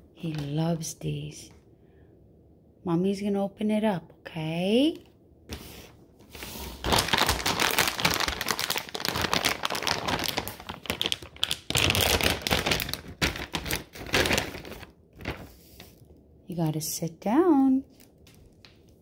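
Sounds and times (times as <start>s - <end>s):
plastic bag crinkling: 6.3s - 16.0s, 17.8s - 19.0s.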